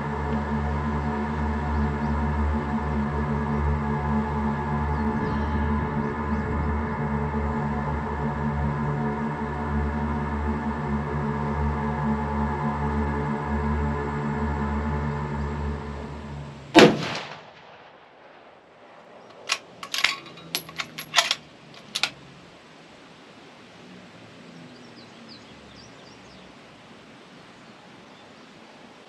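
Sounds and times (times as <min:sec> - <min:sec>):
background music: 0:00.0 - 0:17.8
rifle shot with ringing echo: 0:16.8 - 0:20.0
sharp metallic clicks and clinks: 0:19.3 - 0:22.2.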